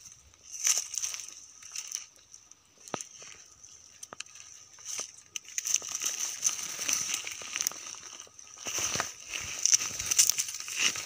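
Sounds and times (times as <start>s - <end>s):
leaves and twigs crunching underfoot: 0.0s - 11.0s
steady high-pitched hiss: 0.0s - 11.0s.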